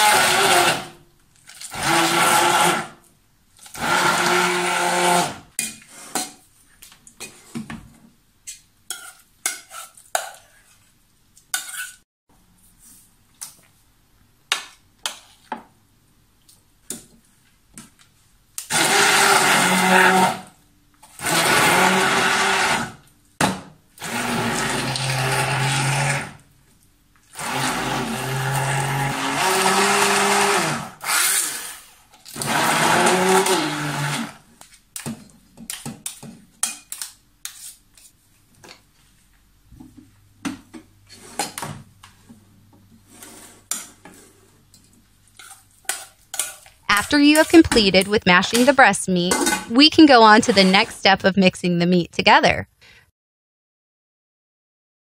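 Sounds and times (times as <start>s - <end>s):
hand blender running: 0.0s - 1.0s, 1.7s - 2.9s, 3.8s - 5.4s, 18.7s - 20.4s, 21.2s - 23.0s, 24.0s - 26.3s, 27.4s - 31.8s, 32.4s - 34.4s.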